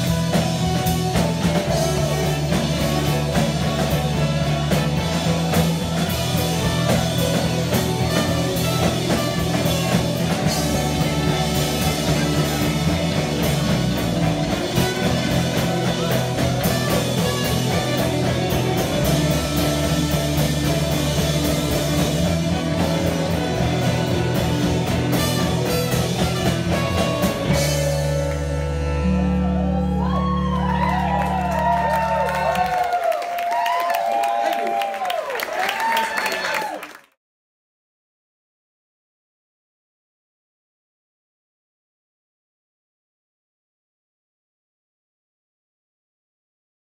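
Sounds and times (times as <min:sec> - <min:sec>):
trumpet: 0:00.0 - 0:28.0
saxophone: 0:00.0 - 0:30.3
live rock band playing: 0:00.0 - 0:33.0.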